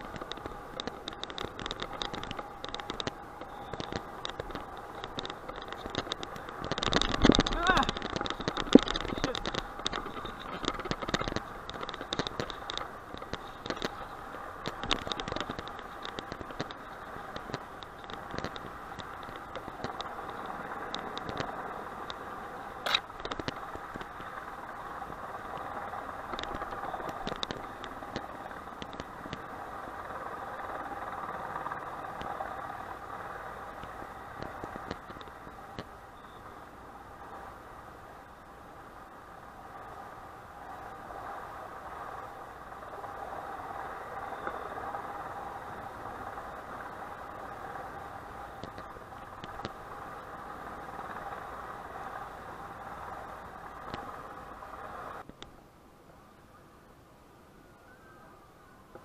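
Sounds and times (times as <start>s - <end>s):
clicks and rattles: 0.0s - 22.2s, 22.8s - 36.0s
outdoor background noise: 0.0s - 59.0s.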